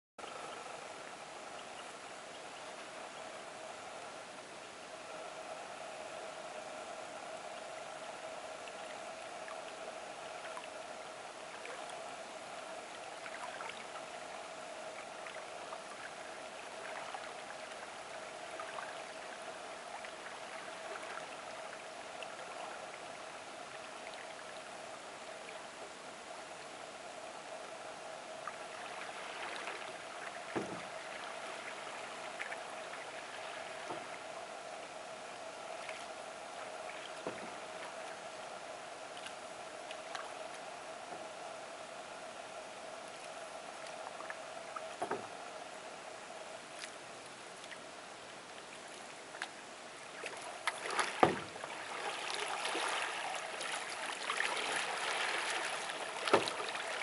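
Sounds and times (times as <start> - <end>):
steady hiss and hum: 0.2 - 57.0
paddle drips and splashes: 7.4 - 27.8, 28.4 - 41.3, 46.5 - 57.0
canoe knock: 51.2 - 51.6.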